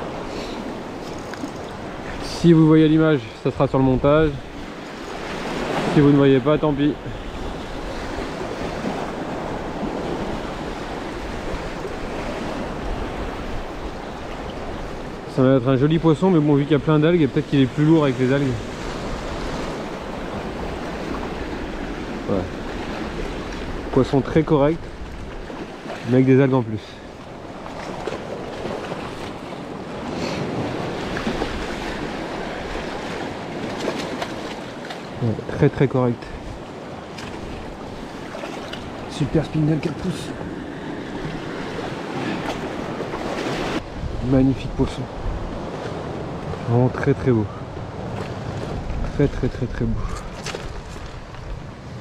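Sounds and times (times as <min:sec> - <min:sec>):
sea surf rushing: 0:00.0 - 0:52.0
wind on microphone: 0:40.3 - 0:46.7, 0:47.4 - 0:52.0.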